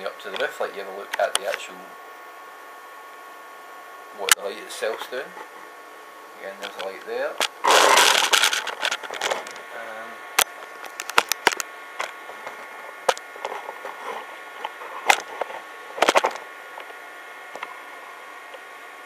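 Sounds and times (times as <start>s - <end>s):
stage light whine: 0.0s - 19.0s
sharp clicks and knocks: 10.4s - 17.7s.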